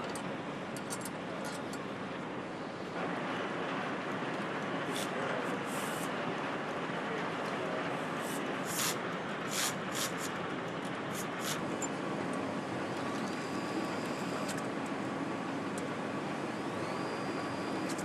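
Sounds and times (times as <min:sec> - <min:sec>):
bursts of hiss: 0:08.2 - 0:10.3
power nutrunner whine: 0:11.1 - 0:18.0.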